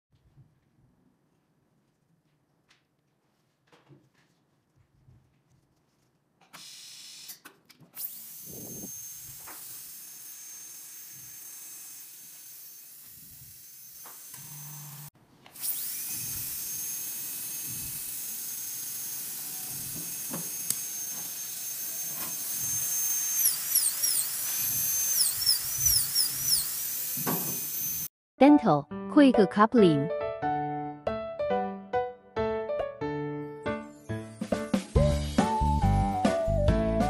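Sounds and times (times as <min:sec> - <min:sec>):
dental drill whining: 0:06.6 - 0:07.4, 0:08.0 - 0:28.1, 0:33.8 - 0:34.6.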